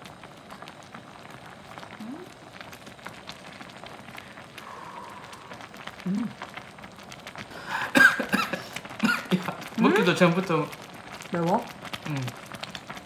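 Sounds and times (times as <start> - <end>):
food sizzling in hot oil: 0.0 - 13.0
person low vocal sounds: 1.9 - 2.4, 4.6 - 6.5, 12.0 - 12.4.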